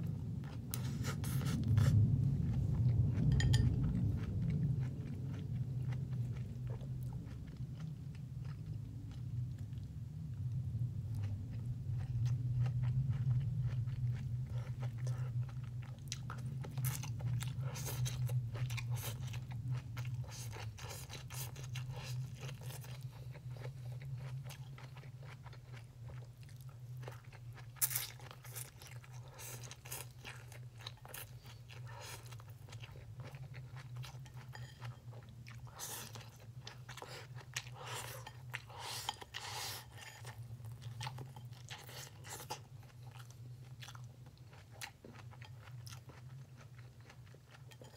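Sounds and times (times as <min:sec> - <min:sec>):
person chewing and slurping: 0:00.0 - 0:09.8, 0:11.1 - 0:47.9
low hum: 0:00.0 - 0:20.8.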